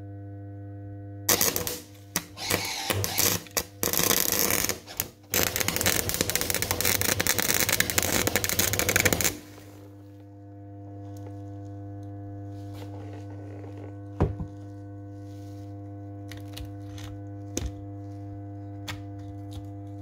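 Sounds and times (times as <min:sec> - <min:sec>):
welder transformer hum: 0:00.0 - 0:20.0
welding arc crackling: 0:01.3 - 0:10.0.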